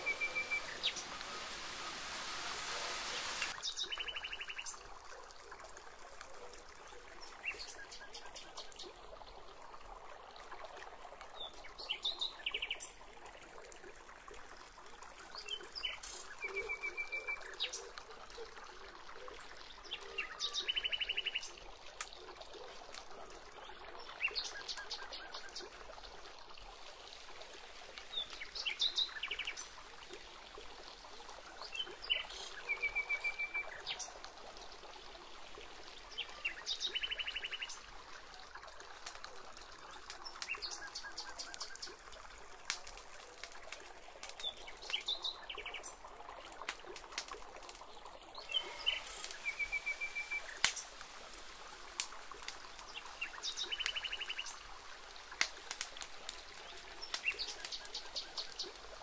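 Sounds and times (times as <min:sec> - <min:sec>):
birds chirping in trills: 0:00.0 - 0:03.5
background hiss: 0:00.0 - 0:04.0.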